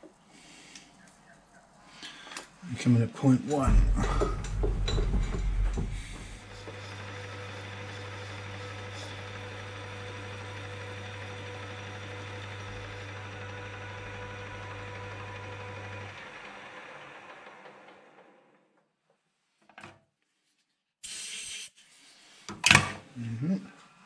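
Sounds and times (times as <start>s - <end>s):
metal lathe humming: 3.6s - 18.0s.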